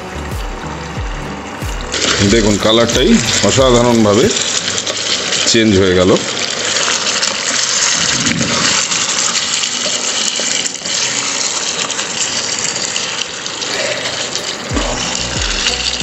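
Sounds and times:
background music with low notes: 0:00.0 - 0:05.8, 0:13.7 - 0:16.0
curry sizzling in a pan: 0:00.0 - 0:16.0
steel spoon stirring: 0:06.4 - 0:16.0.

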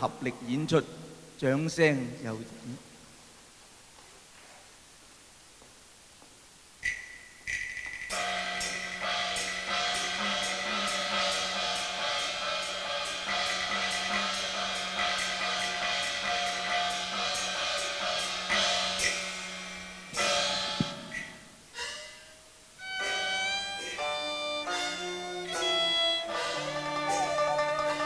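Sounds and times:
loud cymbal crash: 0:06.8 - 0:22.2
cymbals and gongs playing: 0:06.8 - 0:28.0.

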